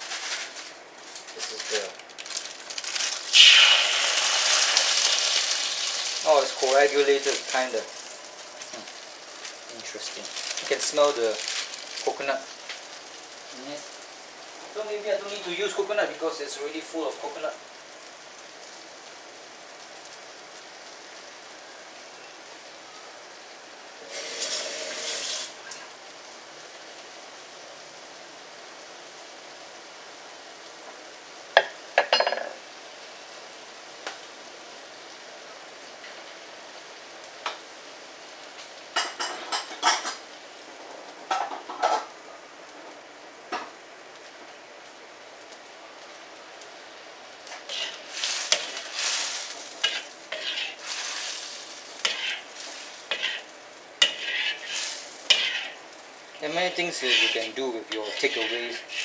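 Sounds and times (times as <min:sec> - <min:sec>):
sauce sizzling and bubbling: 0:00.0 - 0:59.0
spatula scraping a wok: 0:47.5 - 0:59.0.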